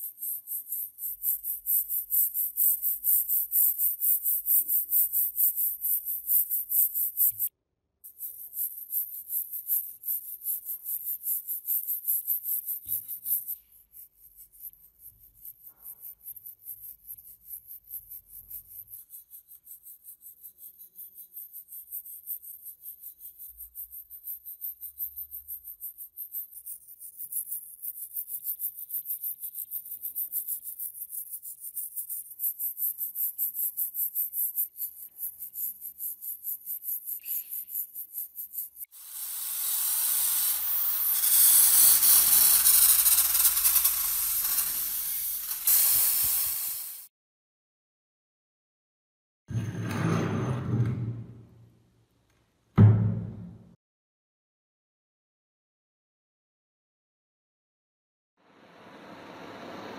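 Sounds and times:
wire brush scrubbing rusty metal: 39.0 - 47.0
metal scraper on rusty surface: 39.0 - 47.1.

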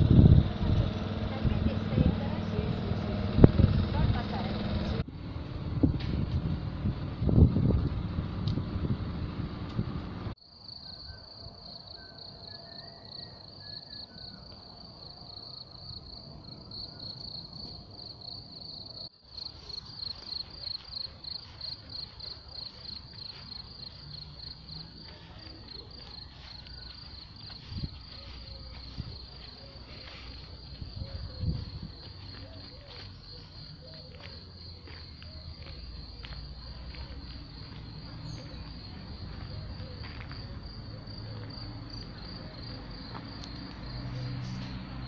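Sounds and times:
crickets chirping: 10.3 - 45.0.

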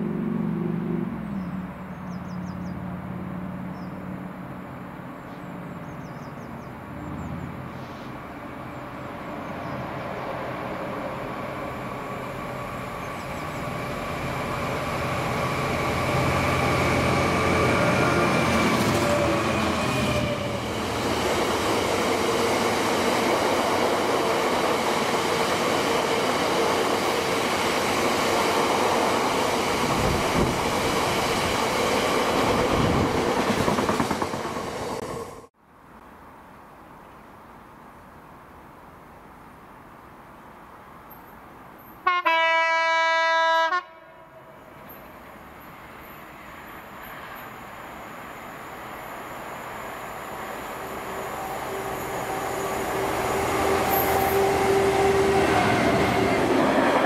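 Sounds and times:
diesel locomotive engine: 6.8 - 35.5, 41.8 - 57.0.

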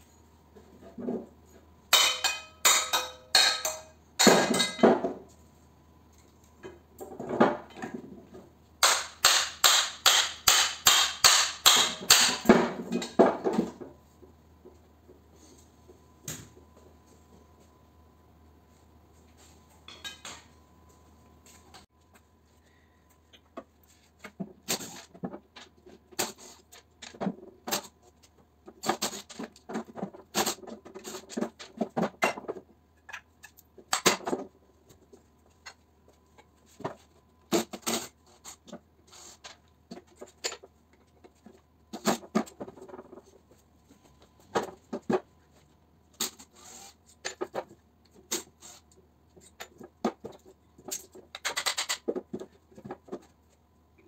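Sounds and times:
metal tools clattering on workbench: 2.0 - 5.2, 11.9 - 13.8, 19.8 - 20.5.

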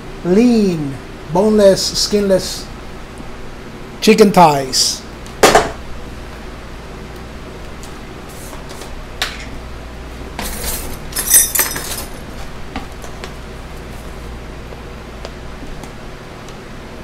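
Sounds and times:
metal utensils clinking: 10.4 - 12.2.

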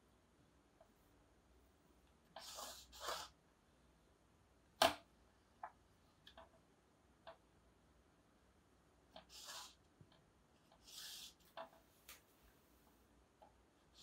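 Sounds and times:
faint ticks of ruler and marker: 2.0 - 3.4, 9.1 - 12.3
marker strokes on whiteboard: 2.2 - 3.4, 9.1 - 13.0.

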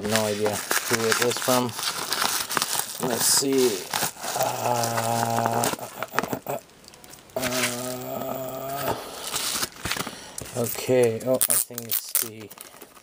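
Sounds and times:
paper and plastic rustling: 0.0 - 8.0, 8.8 - 13.0
man humming low notes: 4.3 - 6.6, 7.4 - 9.0.

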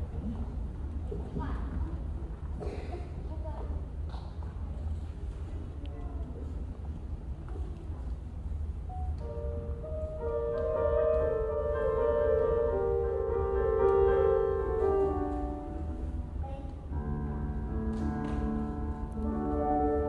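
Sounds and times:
keyboard: 8.8 - 20.0.

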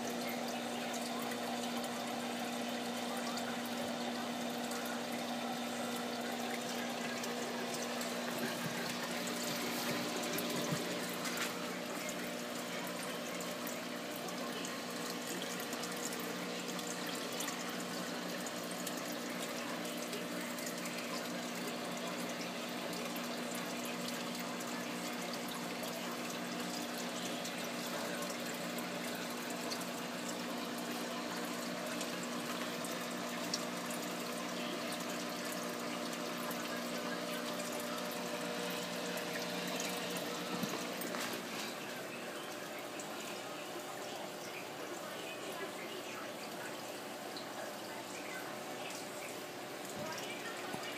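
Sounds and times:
circulating water rushing: 0.0 - 50.9
low pump hum: 0.0 - 50.9.

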